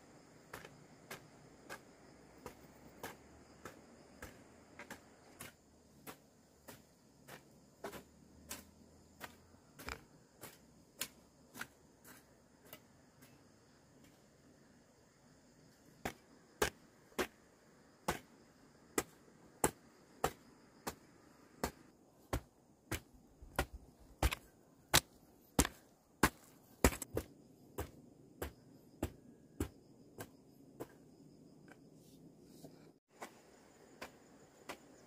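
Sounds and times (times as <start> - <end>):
hoe chopping dry soil: 0.0 - 13.4, 15.8 - 31.1, 33.1 - 35.0.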